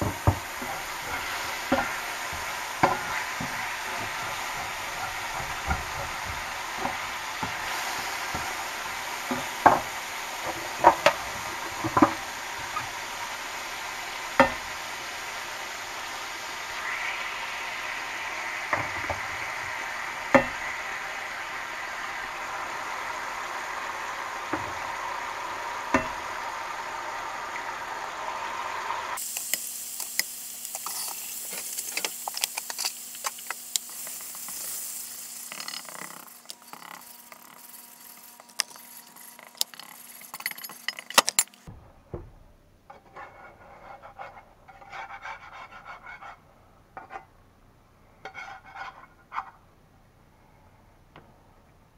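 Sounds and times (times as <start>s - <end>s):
fork scraping skillet: 0.0s - 11.3s, 29.2s - 41.7s, 43.0s - 46.4s, 48.2s - 49.5s
eggs sizzling in skillet: 0.0s - 41.7s.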